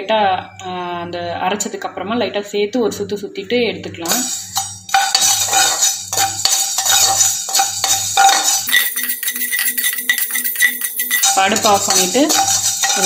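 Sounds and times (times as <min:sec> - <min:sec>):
metal spatula scraping metal pan: 0:04.5 - 0:08.8, 0:11.1 - 0:13.0.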